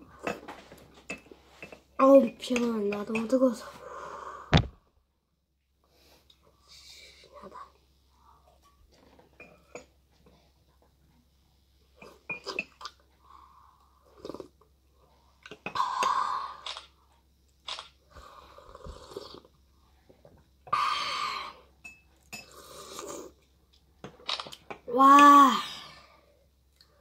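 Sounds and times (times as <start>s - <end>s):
slurping from a spoon: 14.1s - 14.5s, 18.7s - 19.5s, 22.4s - 23.4s.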